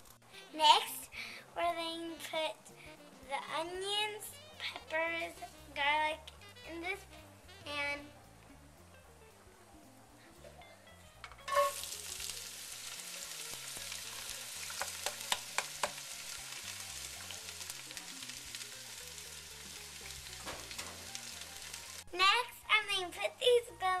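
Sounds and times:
vegetables sizzling in hot oil: 11.4 - 22.2
sharp clicks and pops: 14.7 - 16.1.

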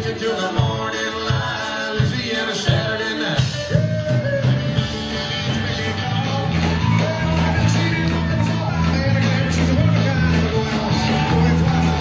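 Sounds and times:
bass guitar: 0.0 - 12.0
drums: 0.0 - 12.0
sliding melody line: 0.4 - 12.0
electric guitar: 2.8 - 12.0.

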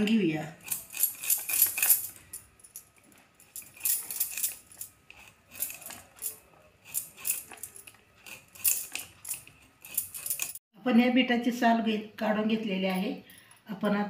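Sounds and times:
metal bangles clinking: 0.6 - 10.6.

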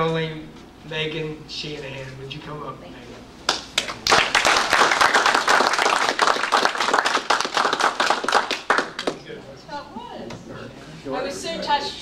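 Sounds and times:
audience applauding: 3.5 - 9.2.

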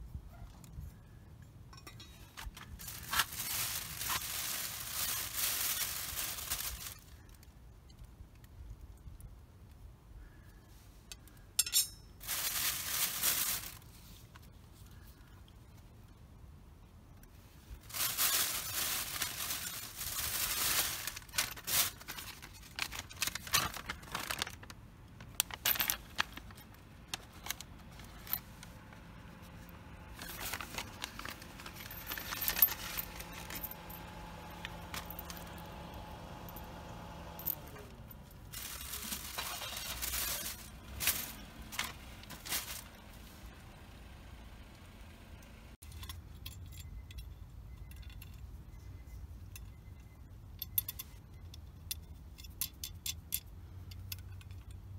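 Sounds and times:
metal bolts and nuts clinking: 1.6 - 7.0, 11.1 - 12.3, 30.1 - 42.4, 45.8 - 48.7, 49.4 - 54.9
paper bag crinkling: 2.3 - 7.3, 12.2 - 14.2, 17.8 - 43.4
light clicks of handled parts: 6.8 - 9.8, 10.4 - 12.2, 45.4 - 54.9.

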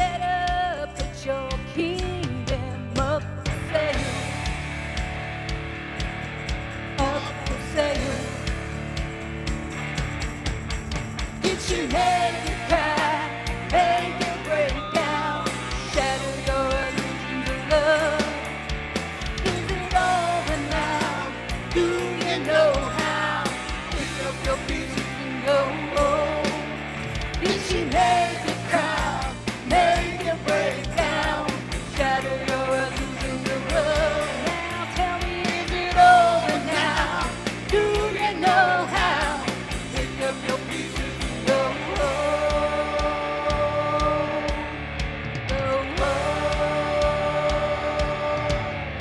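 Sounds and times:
bass guitar: 0.0 - 49.0
drums: 0.0 - 49.0
electric guitars: 0.0 - 49.0
person singing: 7.0 - 8.5, 11.4 - 18.5, 19.4 - 26.7, 27.4 - 49.0.

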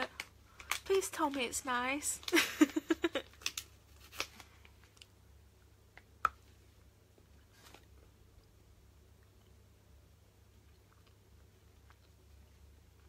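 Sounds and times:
person's voice: 0.8 - 2.4.

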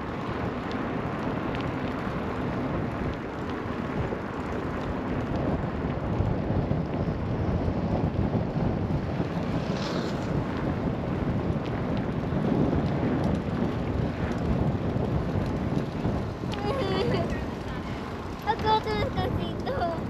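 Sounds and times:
wind rumbling on microphone: 0.0 - 20.0.

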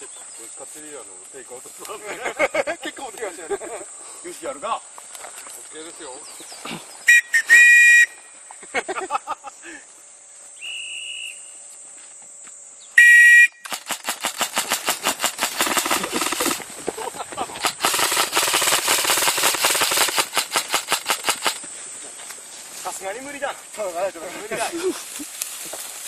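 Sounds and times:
airsoft guns firing: 13.6 - 16.7, 17.5 - 21.7.

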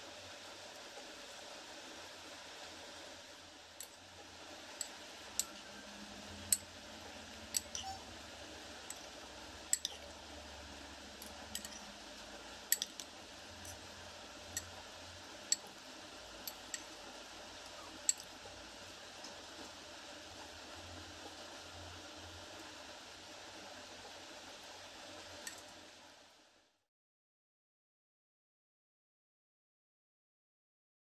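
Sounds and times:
faint steady hiss: 0.0 - 26.9.

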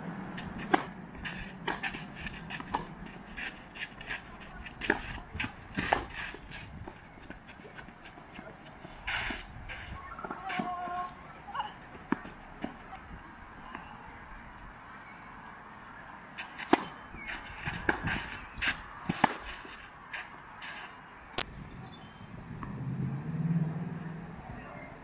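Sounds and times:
tennis ball bouncing: 0.4 - 8.6, 11.8 - 12.9, 16.4 - 19.8
tennis balls struck by rackets: 0.4 - 9.4, 16.4 - 20.4
shoes scuffing on clay: 0.6 - 11.2, 16.4 - 21.0.

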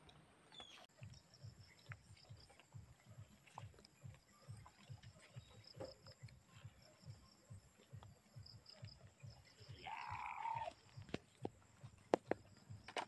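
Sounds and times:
soft low thumps: 0.0 - 13.0
faint insect chirping: 0.6 - 13.0
young goat bleating: 9.8 - 10.8.

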